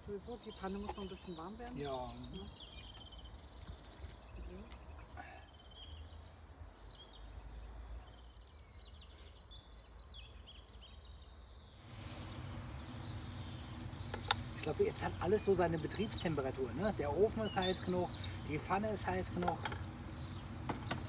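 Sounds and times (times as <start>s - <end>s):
small birds chirping: 0.0s - 21.0s
batter sizzling in pan: 11.8s - 21.0s.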